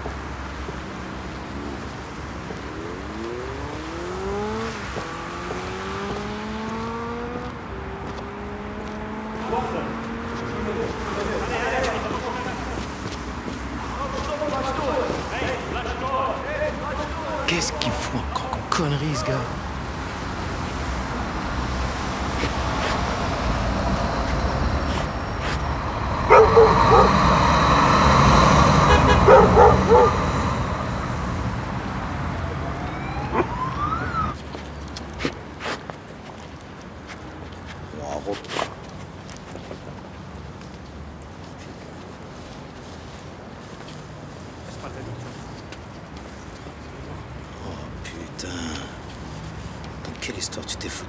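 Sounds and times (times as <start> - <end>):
car engine accelerating: 2.1 - 12.8, 20.8 - 34.4
tyres hissing on wet asphalt: 9.5 - 32.4.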